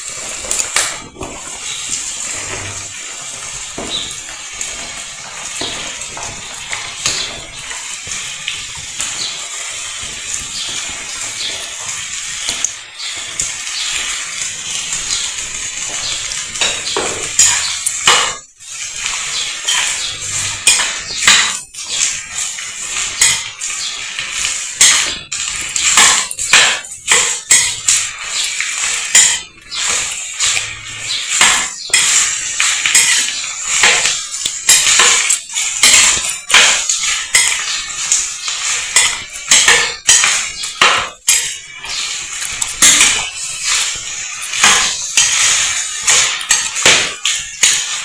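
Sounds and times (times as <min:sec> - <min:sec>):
food sizzling in oil: 0:00.0 - 0:48.0
metal spoon scraping a pot: 0:10.6 - 0:48.0.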